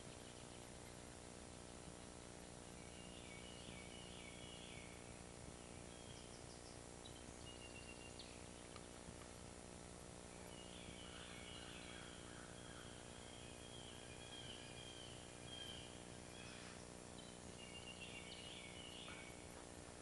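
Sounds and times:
low hiss and hum: 0.0s - 20.0s
songbird warbling: 10.3s - 19.5s.

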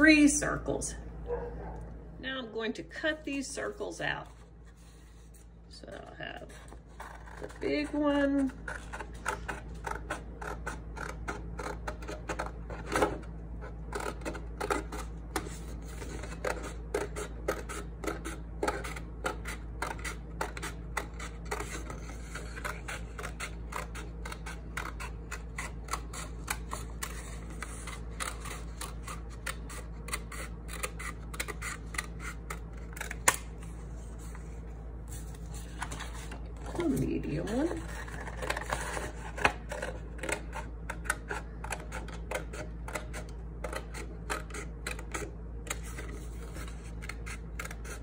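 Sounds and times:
scissors snipping paper: 6.4s - 33.6s, 36.7s - 48.0s.

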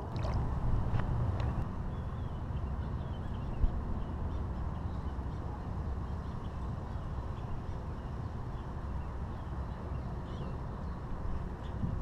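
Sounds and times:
low rumbling background noise: 0.0s - 12.0s.

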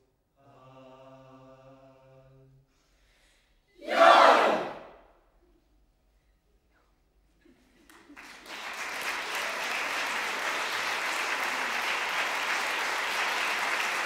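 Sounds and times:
audience applause: 7.9s - 14.0s.

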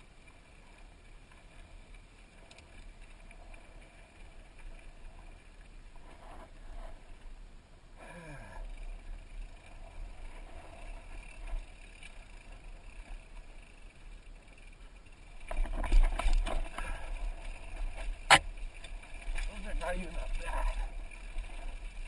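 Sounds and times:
bike clattering over rocks: 15.0s - 21.5s.

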